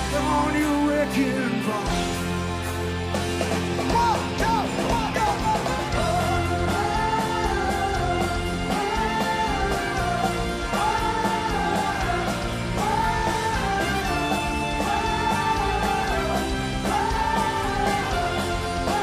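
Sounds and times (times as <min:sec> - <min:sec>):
electric guitar: 0:00.0 - 0:19.0
live rock band playing: 0:00.0 - 0:19.0
voices singing a refrain: 0:04.0 - 0:19.0.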